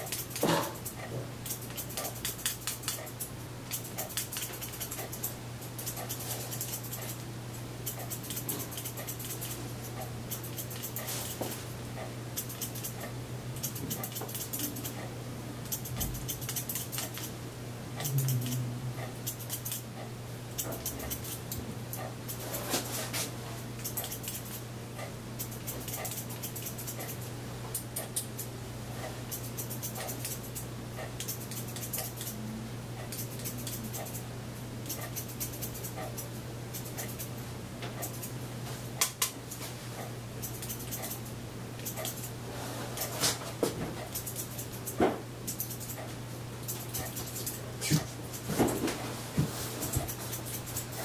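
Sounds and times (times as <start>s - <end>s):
scissors snipping hair: 0.0s - 7.2s, 7.8s - 17.4s, 18.0s - 19.9s, 20.6s - 22.5s, 23.8s - 28.5s, 29.3s - 32.4s, 33.0s - 38.3s, 39.0s - 42.4s, 44.0s - 48.8s, 49.8s - 51.0s
low hum: 11.7s - 22.5s.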